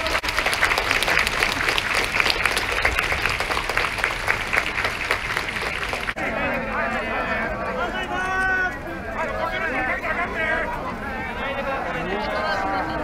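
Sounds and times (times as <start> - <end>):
crowd applauding: 0.0 - 6.2.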